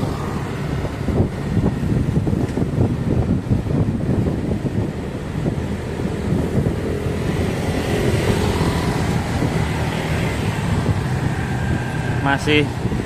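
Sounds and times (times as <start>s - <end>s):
motor vehicle running: 0.0s - 13.0s
wind buffeting microphone: 0.0s - 13.0s.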